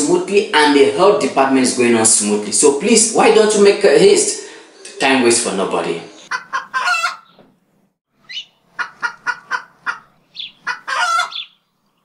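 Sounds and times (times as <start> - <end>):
chicken clucking: 6.1 - 7.4, 8.3 - 11.5.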